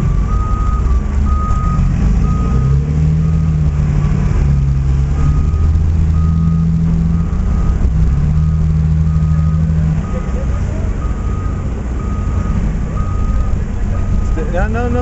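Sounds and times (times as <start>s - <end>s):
diesel engine drone: 0.0s - 15.0s
backup alarm beeping: 11.0s - 14.4s.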